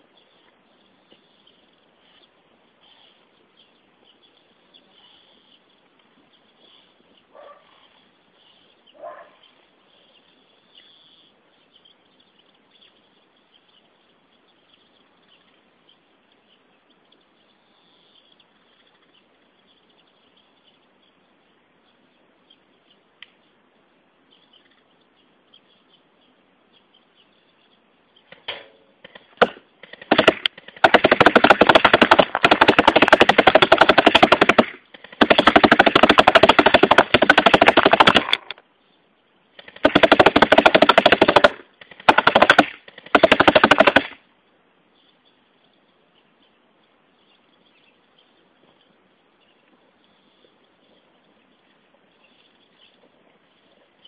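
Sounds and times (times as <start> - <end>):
faint hiss: 0.0 - 30.8, 38.6 - 39.8, 44.1 - 54.0
airsoft rifle bursts: 29.0 - 38.6
pellets hitting wooden board: 29.1 - 38.5, 39.6 - 44.1.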